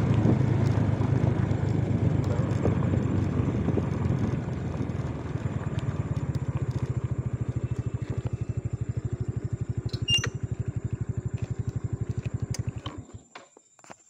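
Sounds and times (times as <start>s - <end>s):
motorcycle engine idling: 0.0s - 13.4s
sharp click: 9.9s - 10.4s.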